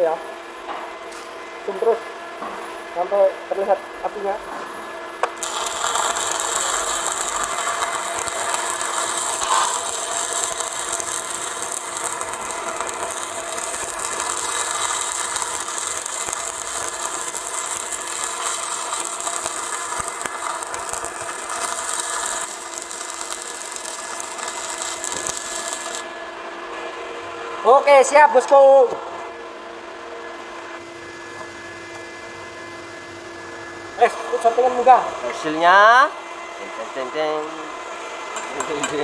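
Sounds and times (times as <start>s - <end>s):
welding arc crackling: 5.2s - 26.2s.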